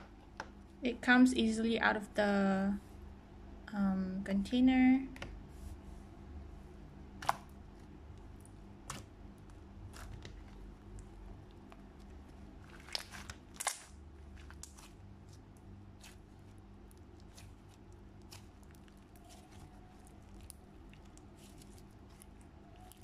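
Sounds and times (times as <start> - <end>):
slime popping and crackling: 9.9 - 23.0.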